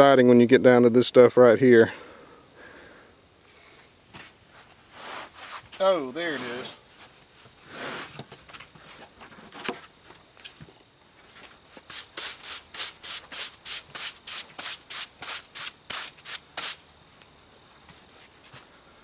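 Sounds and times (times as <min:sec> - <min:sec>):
broom sweeping sawdust: 0:04.5 - 0:08.2, 0:11.2 - 0:16.9.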